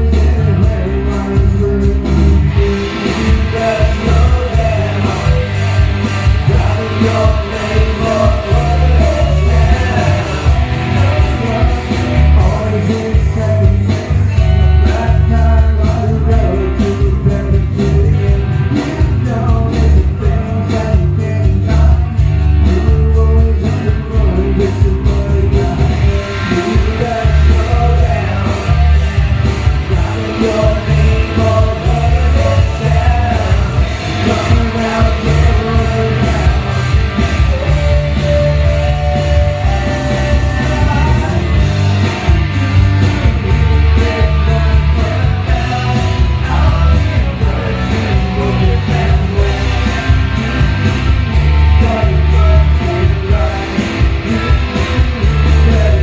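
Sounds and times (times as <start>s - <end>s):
drums keeping a steady beat: 0.0s - 56.0s
electric and acoustic guitars: 0.0s - 56.0s
man singing: 0.0s - 56.0s.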